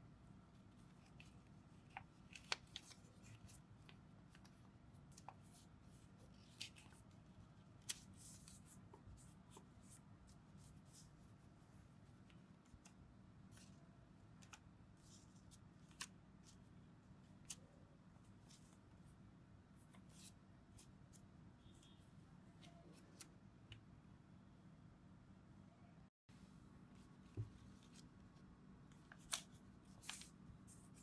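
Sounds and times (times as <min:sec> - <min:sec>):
paper crinkling and crackling: 0:00.8 - 0:05.6, 0:29.1 - 0:31.0.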